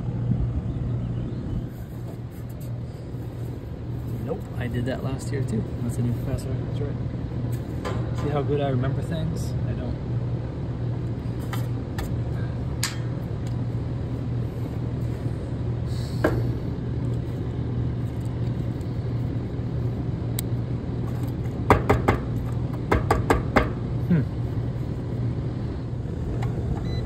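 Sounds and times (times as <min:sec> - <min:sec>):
air conditioning unit humming: 0:00.0 - 0:27.0.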